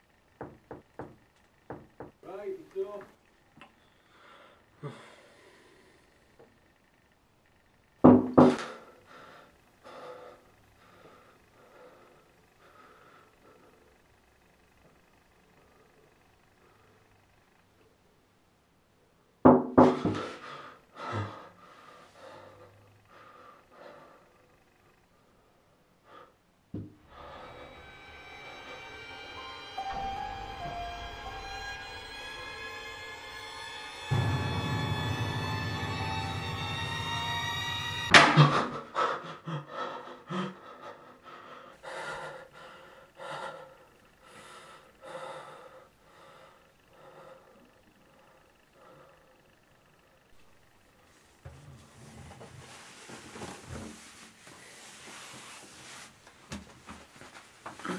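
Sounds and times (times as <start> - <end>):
loud knocking on door: 0.4 - 2.2, 8.0 - 8.6, 19.5 - 20.2
person breathing heavily: 3.8 - 6.3, 8.6 - 14.2, 20.0 - 27.9, 38.4 - 49.6
music: 27.0 - 38.4.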